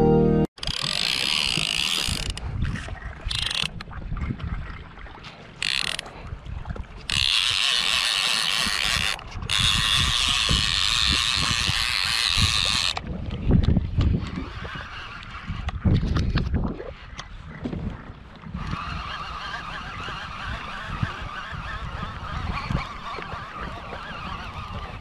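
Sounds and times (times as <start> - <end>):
fishing reel drag buzzing: 0.6 - 2.4, 3.2 - 3.8, 5.6 - 6.0, 7.1 - 13.0, 14.2 - 16.0, 18.6 - 25.0
wind and water noise: 0.6 - 25.0.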